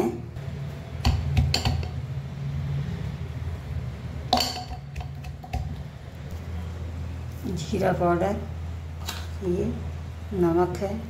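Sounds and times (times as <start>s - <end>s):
pestle pounding in a mortar: 1.0s - 2.0s, 4.4s - 5.9s.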